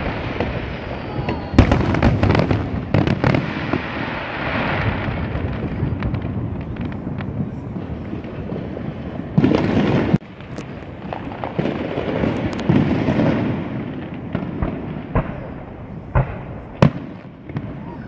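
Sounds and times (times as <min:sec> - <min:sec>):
fireworks booming and crackling: 0:00.0 - 0:18.0
sharp pops and crackles: 0:09.4 - 0:13.0.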